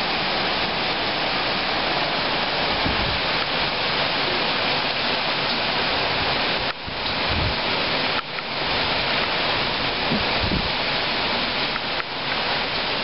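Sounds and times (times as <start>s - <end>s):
gusty wind through leaves: 0.0s - 13.0s
wind thumps on microphone: 2.8s - 3.2s, 6.7s - 7.6s, 10.0s - 10.8s.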